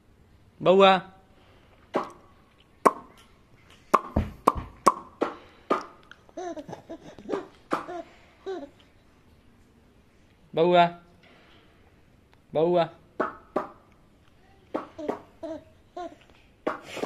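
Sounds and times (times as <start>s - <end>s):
short sharp pops: 1.9s - 6.1s
baby laughing: 6.3s - 8.9s, 14.8s - 16.3s.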